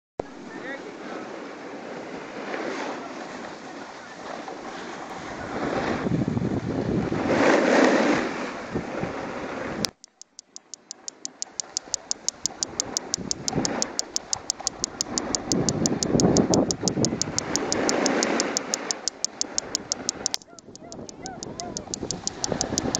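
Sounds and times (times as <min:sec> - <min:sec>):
wind on microphone: 0:05.2 - 0:07.5
fast even ticking: 0:09.9 - 0:22.9.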